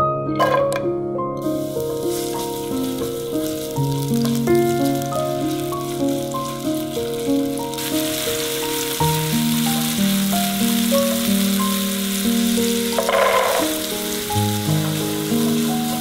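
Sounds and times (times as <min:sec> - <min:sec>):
food sizzling in oil: 0:01.4 - 0:16.0.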